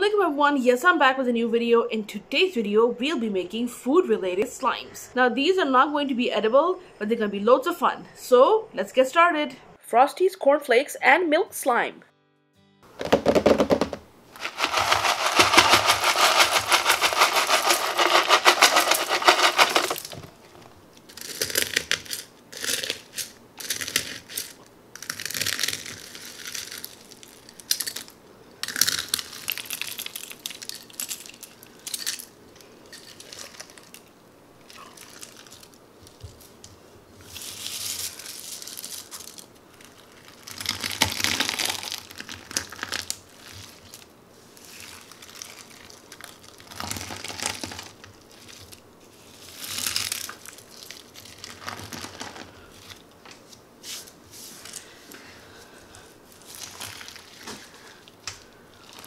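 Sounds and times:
cereal flakes crunching: 14.3 - 20.2, 21.1 - 32.3, 32.9 - 34.0, 34.6 - 36.4, 37.2 - 53.0, 56.4 - 58.0.

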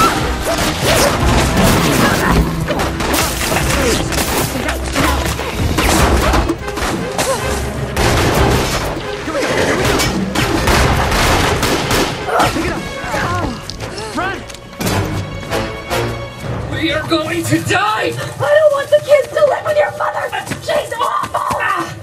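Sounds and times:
film music: 0.0 - 21.8.

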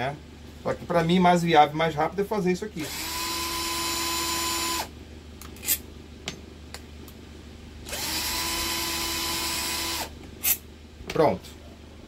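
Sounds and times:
cordless drill whine: 2.8 - 4.9, 7.9 - 10.1.

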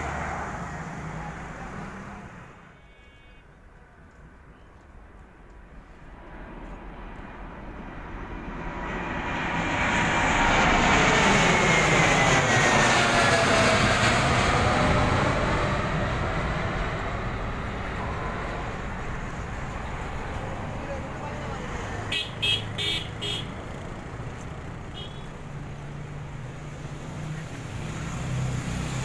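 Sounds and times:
jet airliner passing overhead: 0.0 - 3.7, 4.4 - 29.0.

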